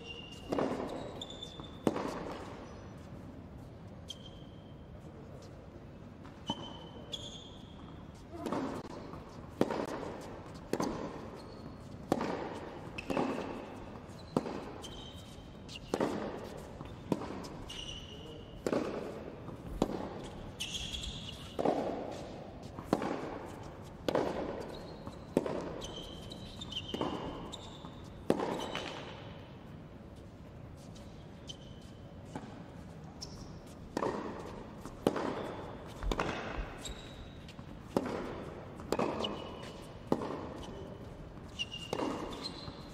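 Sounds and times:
shoes squeaking on court: 0:00.0 - 0:42.9
racquet striking tennis ball: 0:00.2 - 0:02.6, 0:08.3 - 0:29.4, 0:33.6 - 0:42.9
tennis ball bouncing: 0:00.3 - 0:03.1, 0:06.2 - 0:30.3, 0:30.9 - 0:42.9.

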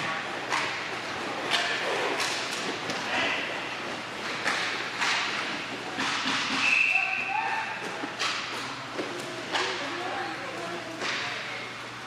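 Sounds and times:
hockey sticks cracking: 0:00.4 - 0:03.1, 0:04.2 - 0:07.1, 0:07.8 - 0:10.0.

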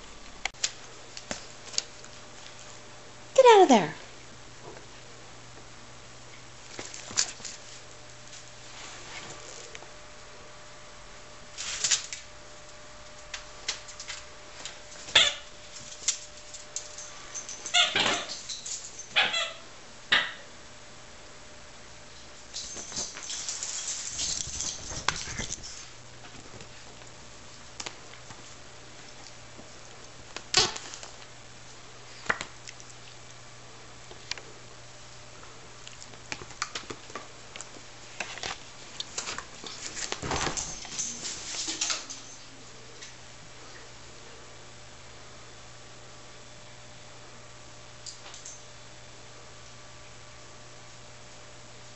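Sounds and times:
dog paws pattering: 0:22.4 - 0:27.1.

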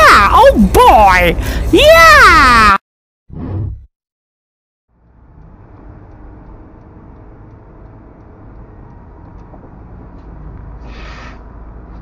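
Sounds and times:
car interior road rumble: 0:04.9 - 0:10.8.

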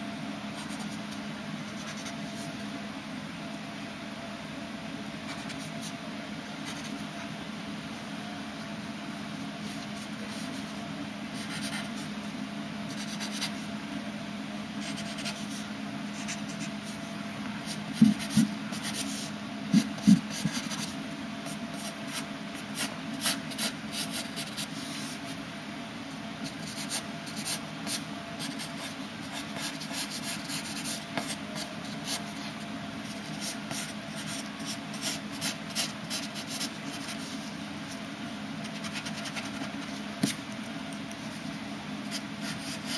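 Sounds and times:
steady low hum: 0:00.0 - 0:42.9
pencil scratching on paper: 0:26.6 - 0:37.5.

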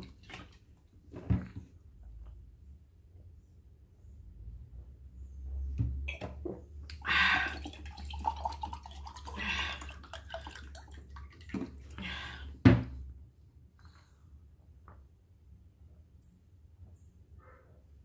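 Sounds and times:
water pouring into a glass: 0:06.9 - 0:12.0.

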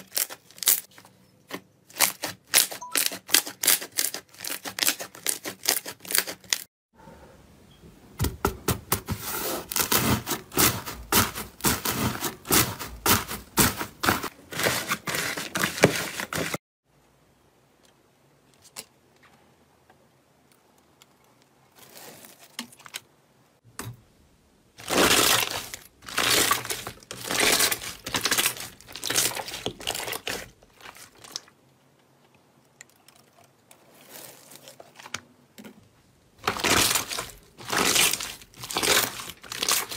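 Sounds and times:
slime crackling and popping: 0:36.4 - 0:39.9.

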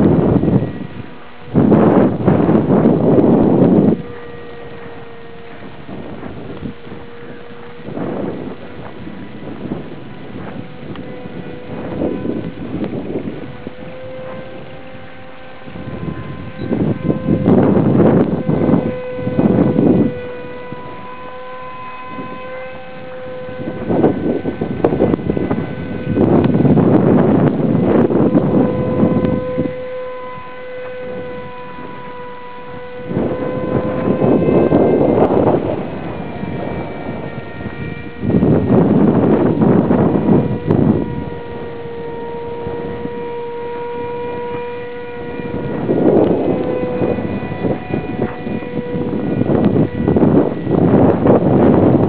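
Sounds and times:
model plane motor drone: 0:00.0 - 0:52.0
wind buffeting microphone: 0:00.0 - 0:52.0.

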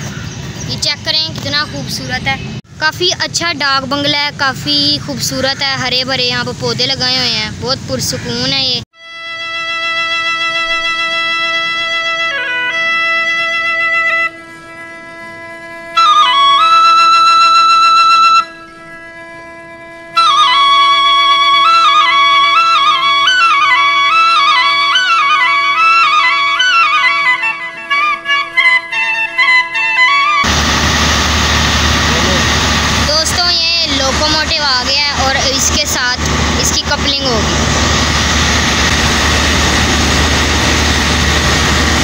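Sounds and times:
ornamented melody: 0:09.0 - 0:42.0
steady drone note: 0:30.2 - 0:42.0.

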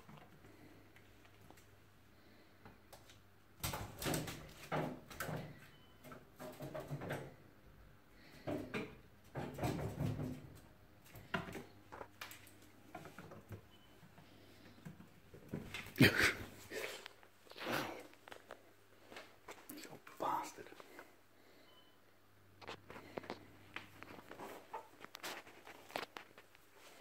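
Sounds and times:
squirrel scrabbling and scratching: 0:22.6 - 0:27.0.

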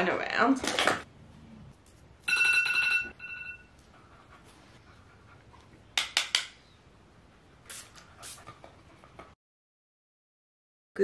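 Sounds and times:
dog panting: 0:03.8 - 0:05.9.

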